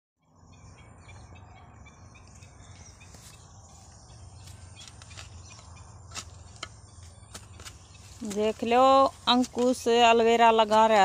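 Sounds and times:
birds chirping: 0.2s - 11.0s
hand hoe striking soil: 4.4s - 10.0s.

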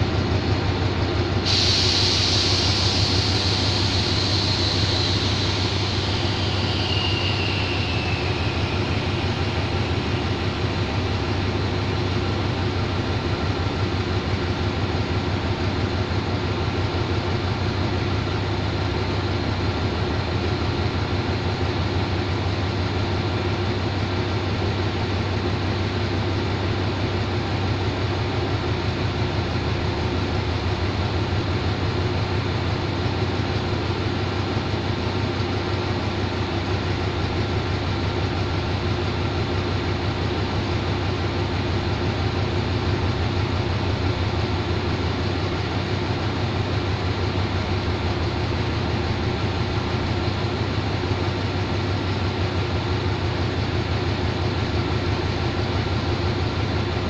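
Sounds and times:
locomotive engine idling: 0.0s - 21.9s.

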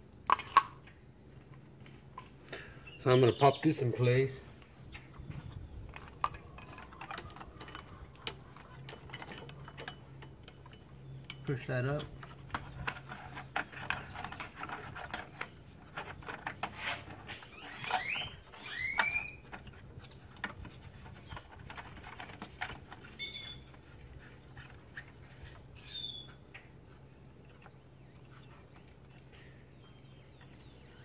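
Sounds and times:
bird chirping: 2.5s - 16.6s, 17.2s - 31.0s
plastic and metal parts clicking: 5.9s - 23.4s.

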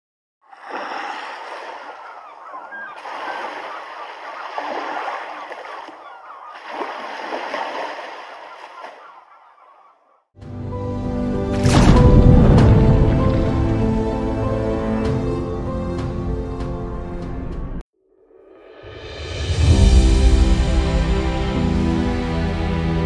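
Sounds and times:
flock of birds honking: 1.2s - 10.2s.

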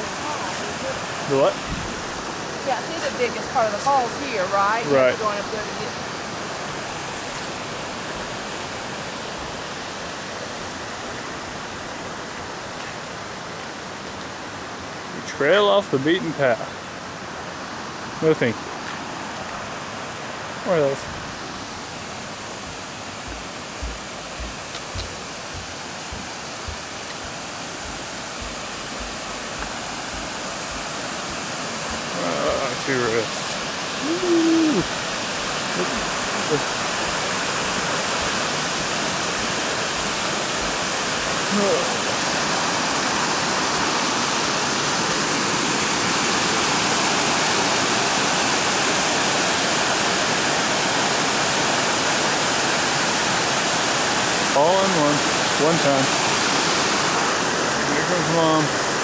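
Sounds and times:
waterfall rushing: 0.0s - 59.0s
footstep thumps: 1.6s - 2.0s, 22.6s - 32.1s.

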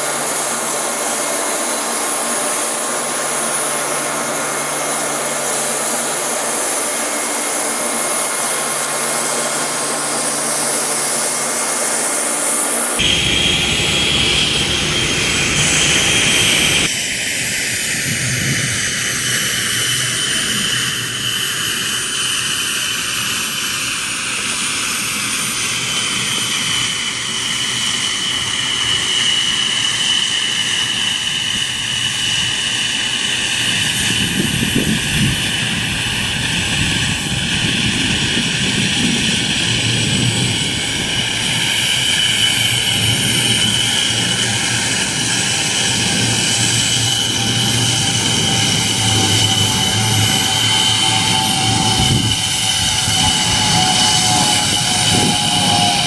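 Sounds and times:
suction fan whining: 0.0s - 16.9s, 33.6s - 56.0s.

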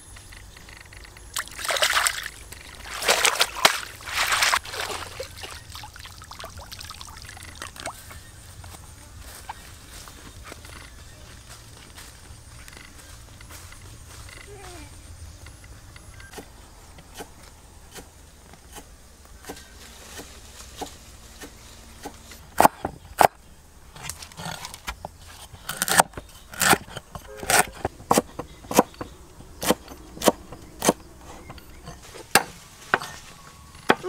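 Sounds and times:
knife chopping on wooden board: 25.7s - 31.6s.

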